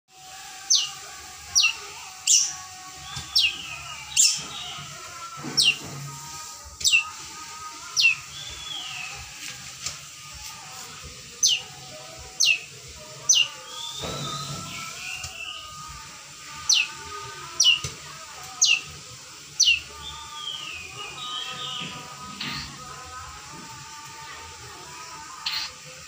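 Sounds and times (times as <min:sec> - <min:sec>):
shrike whistled calls: 0:06.8 - 0:07.2, 0:13.3 - 0:15.8
soft bird warbling: 0:06.8 - 0:07.2, 0:07.9 - 0:09.1, 0:16.4 - 0:17.9, 0:22.4 - 0:22.8, 0:25.4 - 0:25.8.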